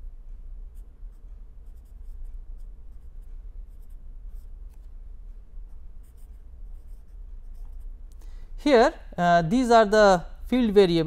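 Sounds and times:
steady low hum: 0:00.0 - 0:11.0
pen scratching on paper: 0:01.6 - 0:04.9, 0:05.7 - 0:07.9.

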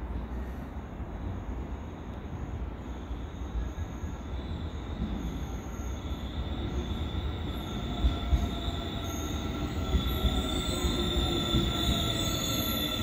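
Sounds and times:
subway train low rumble: 0:00.0 - 0:13.0
thin high whining tones: 0:02.9 - 0:13.0.

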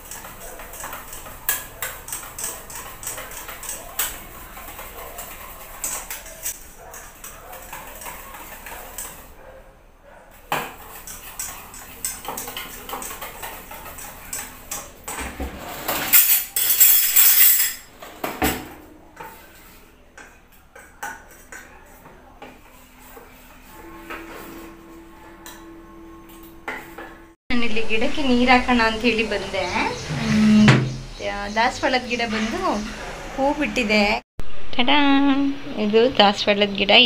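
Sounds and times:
wire whisk clinking in metal bowl: 0:00.0 - 0:09.3, 0:10.6 - 0:14.9.

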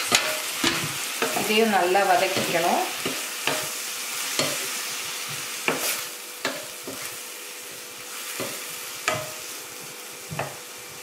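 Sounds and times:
wooden spatula knocking pan: 0:00.0 - 0:01.6, 0:02.2 - 0:03.8, 0:05.3 - 0:07.1, 0:08.4 - 0:09.4
onions sizzling in oil: 0:00.0 - 0:11.0.

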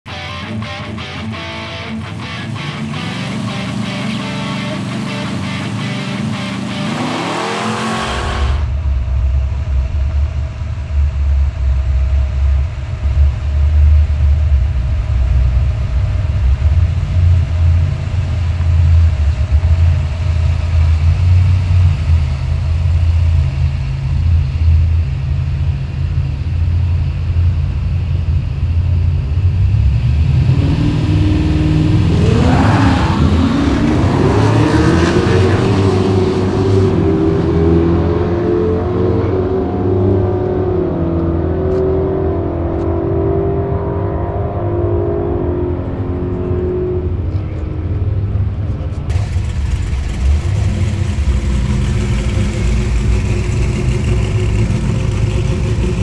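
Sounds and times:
music: 0:00.1 - 0:06.9
race car engines idling: 0:00.1 - 0:43.0, 0:45.4 - 0:56.0
car engine accelerating: 0:00.1 - 0:56.0.

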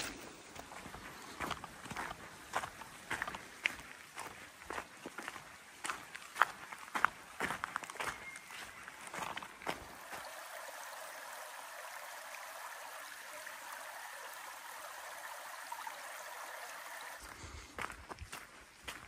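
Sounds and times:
footsteps: 0:00.0 - 0:10.3, 0:17.2 - 0:19.0
stream running: 0:00.0 - 0:19.0.

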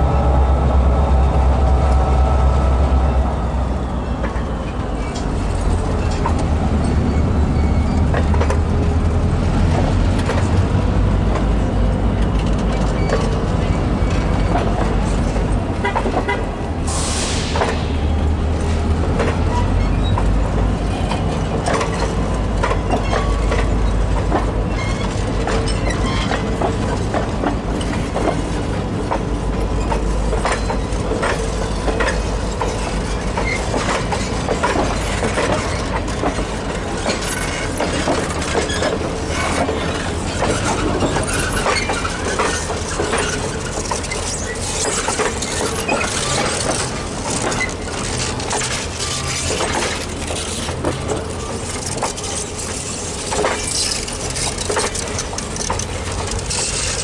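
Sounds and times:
train wheels clicking over rail joints: 0:00.0 - 0:57.0
brief hiss: 0:16.9 - 0:17.9.

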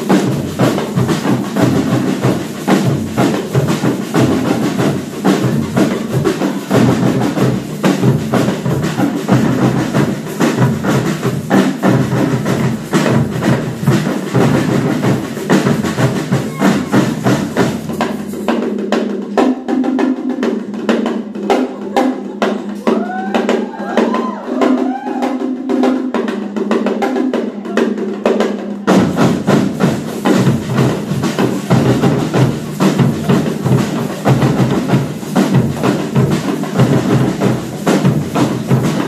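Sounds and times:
percussion ensemble drumming: 0:00.0 - 0:39.0.

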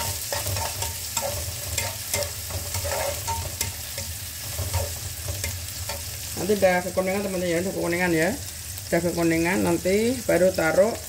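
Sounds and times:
spatula scraping and tapping pan: 0:00.0 - 0:06.3
vegetables sizzling in oil: 0:00.0 - 0:11.0.

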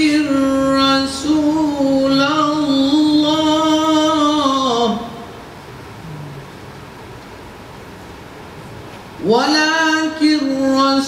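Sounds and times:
man chanting recitation: 0:00.0 - 0:05.2, 0:09.2 - 0:11.0.

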